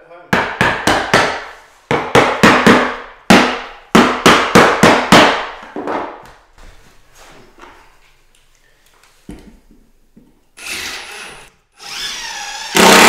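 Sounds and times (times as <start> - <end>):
hammer knocking floorboard: 0.4 - 6.4.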